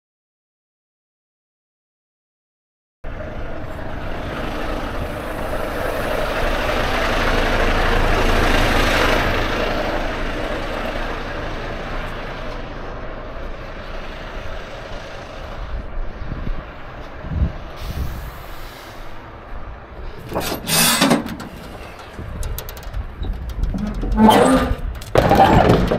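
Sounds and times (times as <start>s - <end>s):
truck engine and tyre noise: 3.0s - 25.9s.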